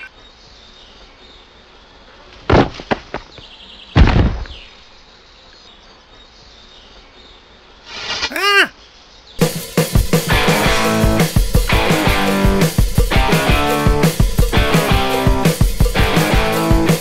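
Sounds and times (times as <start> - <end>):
low steady hiss: 0.0 - 2.5, 4.5 - 9.4
heavy crash with deep thud: 4.0 - 4.6.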